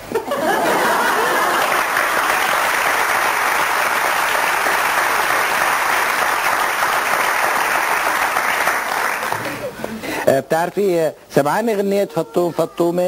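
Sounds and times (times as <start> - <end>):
audience applauding: 0.7 - 9.8.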